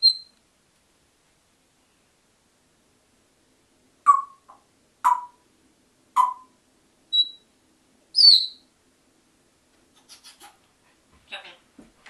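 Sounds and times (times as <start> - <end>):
parrot calling: 0.0 - 0.3, 4.0 - 5.4, 6.2 - 7.4, 8.1 - 8.6
parrot whistling: 0.0 - 0.4, 4.0 - 5.4, 6.2 - 7.4, 8.1 - 8.6.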